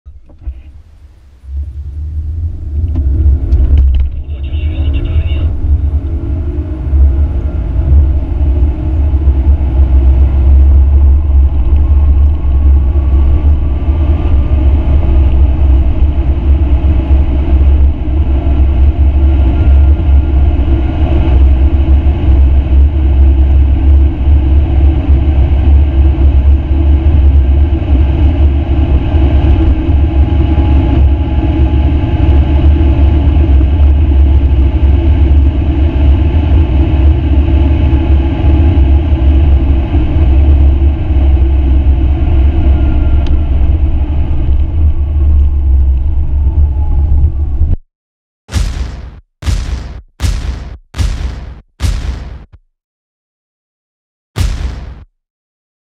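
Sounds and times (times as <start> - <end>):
tyre and wind noise: 0.1 - 4.4
car engine at full throttle: 0.1 - 46.6.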